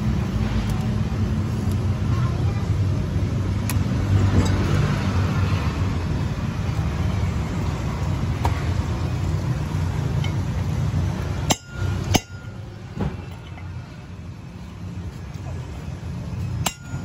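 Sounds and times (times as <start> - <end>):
metal bar striking bearing race: 11.4 - 12.7, 16.6 - 17.0.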